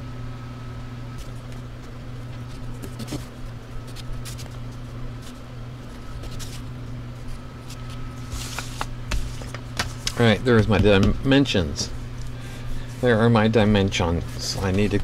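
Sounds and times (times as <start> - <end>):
low electrical hum: 0.0 - 15.0
cardboard and plastic rustling: 1.2 - 11.2, 14.2 - 15.0.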